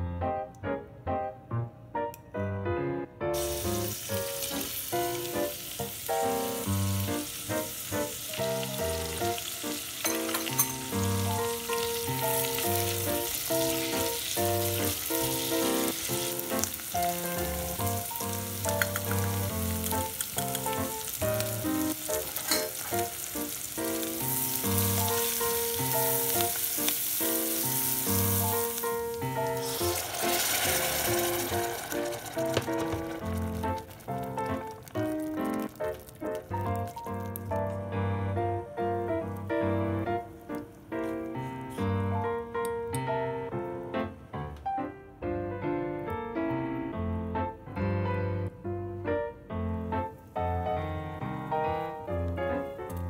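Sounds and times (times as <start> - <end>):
piano background music: 0.0 - 53.0
vegetables sizzling in butter: 3.4 - 37.7.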